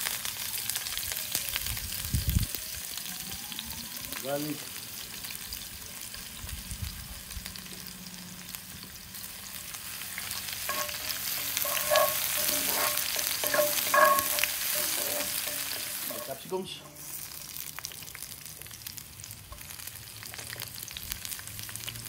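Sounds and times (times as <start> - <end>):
onions sizzling in oil: 0.0 - 22.0
wooden spoon scraping a pan: 10.3 - 17.3.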